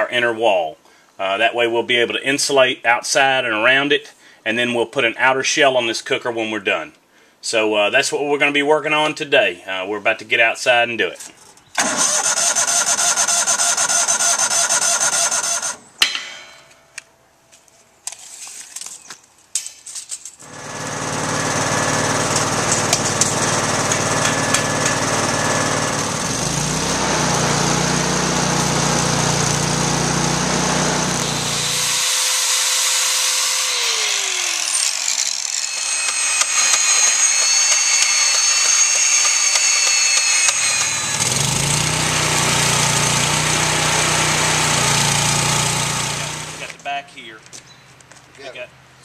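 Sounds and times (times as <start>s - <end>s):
machine winding down: 11.8s - 15.8s, 20.4s - 46.7s
machine hum: 20.4s - 34.8s, 35.6s - 46.6s
high steady whines: 20.4s - 43.5s.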